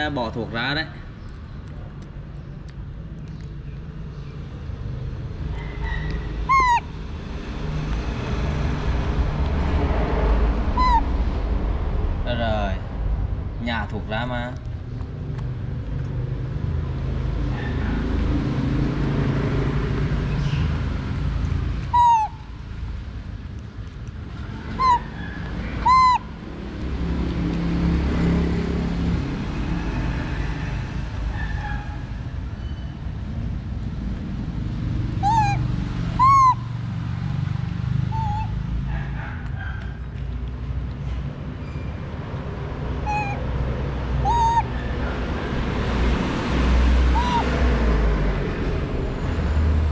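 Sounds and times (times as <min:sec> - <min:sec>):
monkey calling: 0:05.6 - 0:07.0, 0:10.7 - 0:11.2, 0:21.8 - 0:22.6, 0:24.6 - 0:26.5, 0:35.2 - 0:36.8, 0:38.0 - 0:38.6, 0:43.0 - 0:43.5, 0:44.1 - 0:45.2, 0:47.1 - 0:47.6
low rumble: 0:09.0 - 0:14.1.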